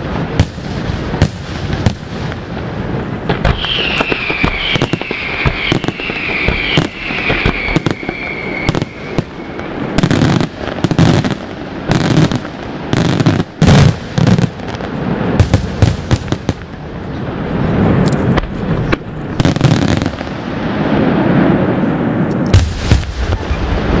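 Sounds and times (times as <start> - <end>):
firework whistle falling: 3.4 - 10.4.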